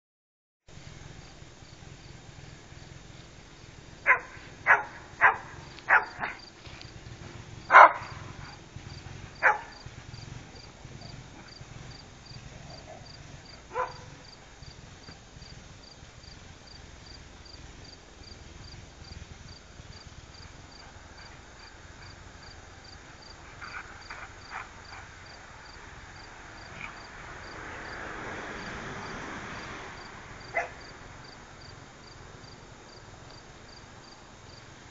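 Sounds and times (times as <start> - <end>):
insects chirping: 1.1 - 34.9
dog barking: 4.0 - 6.4, 7.7 - 8.6, 9.4 - 9.8, 13.7 - 14.2, 30.5 - 30.8.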